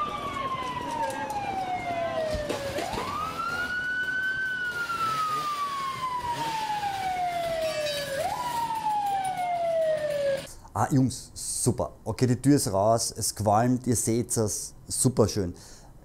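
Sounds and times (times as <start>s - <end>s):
emergency siren wailing: 0.0s - 10.5s.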